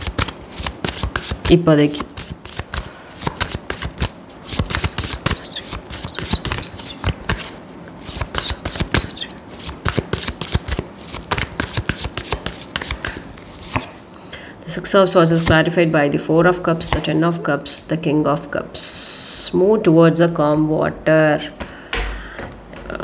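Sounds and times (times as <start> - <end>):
cards being shuffled: 0.0 - 14.0.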